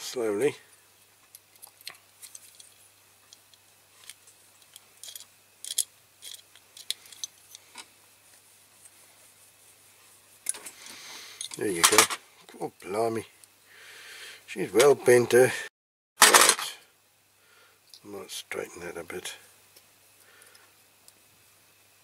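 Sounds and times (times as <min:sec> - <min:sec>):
light metallic clicks and scrapes: 0:01.2 - 0:09.0.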